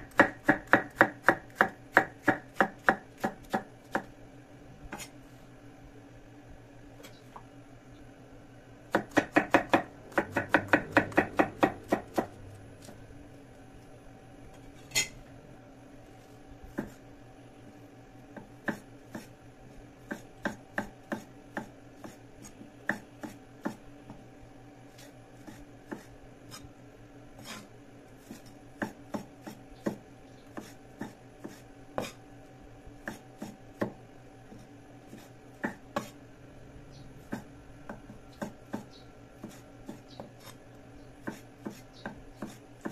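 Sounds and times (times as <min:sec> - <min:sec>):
cleaver chopping on wooden block: 0:08.9 - 0:12.3.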